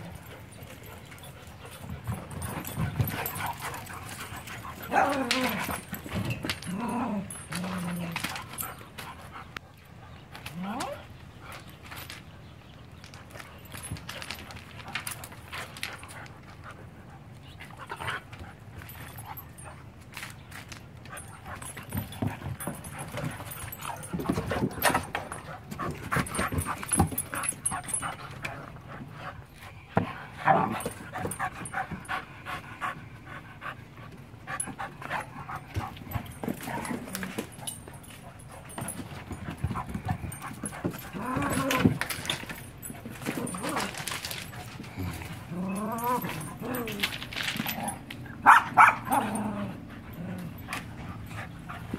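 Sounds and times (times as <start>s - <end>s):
dogs panting: 0.0s - 10.3s, 20.9s - 51.9s
paws scrabbling on wooden boards: 0.0s - 49.3s, 49.9s - 51.9s.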